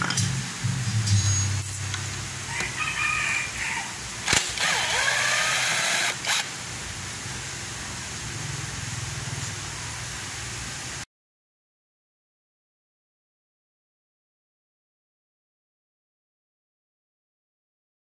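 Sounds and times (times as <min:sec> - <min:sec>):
power drill whining: 0:04.3 - 0:06.5.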